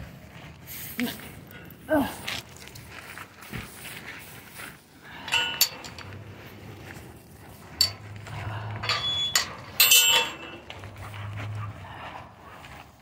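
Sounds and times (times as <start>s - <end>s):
chain-link gate clanking: 5.1s - 6.7s, 7.6s - 11.4s.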